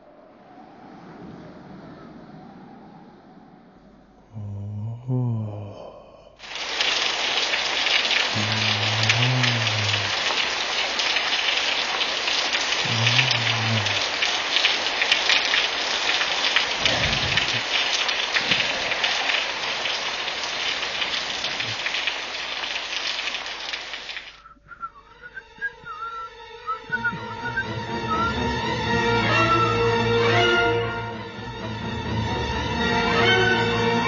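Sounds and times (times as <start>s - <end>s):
heavy rain falling: 6.4s - 24.4s, 27.1s - 34.0s.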